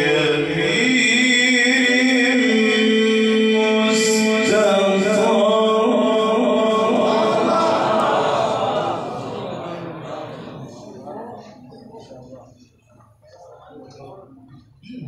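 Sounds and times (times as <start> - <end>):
man chanting into a microphone: 0.0 - 7.8.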